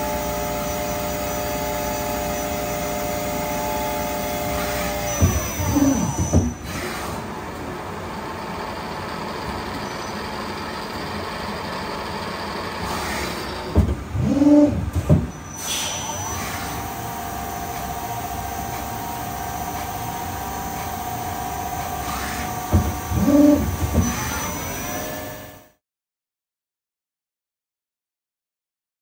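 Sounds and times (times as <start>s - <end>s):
tool turret whirs and knocks: 0.0s - 7.7s, 11.9s - 25.6s
steady machine whine: 0.0s - 14.9s, 15.5s - 25.8s
lathe mechanical hum: 0.0s - 25.7s.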